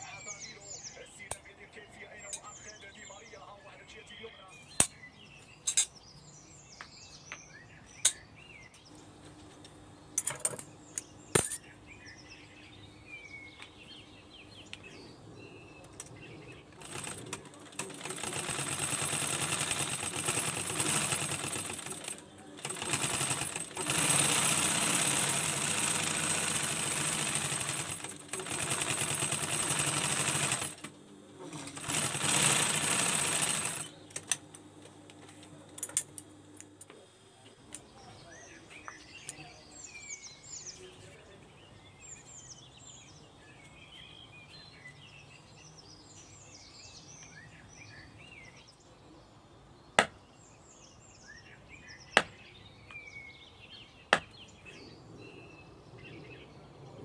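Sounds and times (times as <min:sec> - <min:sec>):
sewing machine stitching: 0:16.8 - 0:34.4.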